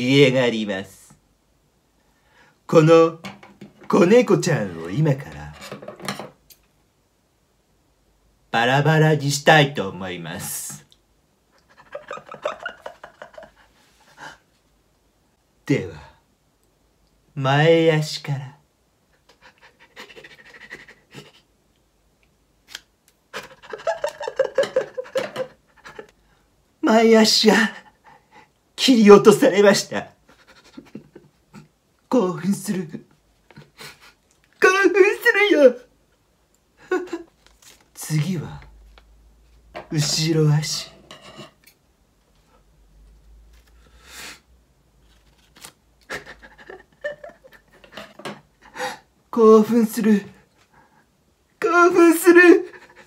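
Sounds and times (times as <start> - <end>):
paper rustling: 37.2 - 39.6, 43.1 - 44.0, 45.0 - 46.3.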